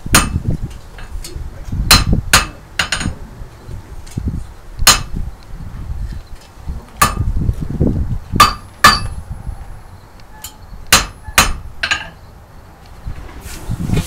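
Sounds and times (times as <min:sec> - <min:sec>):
hammer striking metal on anvil: 0:00.1 - 0:00.4, 0:01.9 - 0:03.1, 0:04.8 - 0:05.1, 0:07.0 - 0:07.3, 0:08.4 - 0:09.2, 0:10.4 - 0:12.2.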